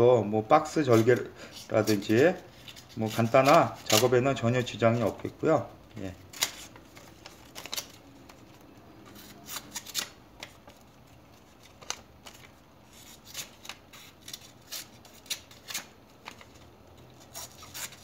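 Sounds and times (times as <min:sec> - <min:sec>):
knife slicing paper: 0:17.2 - 0:18.0.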